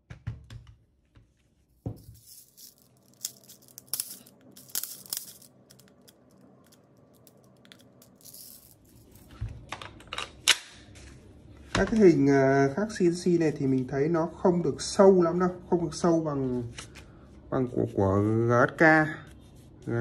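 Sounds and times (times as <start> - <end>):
plastic pellets rattling: 2.0 - 9.3.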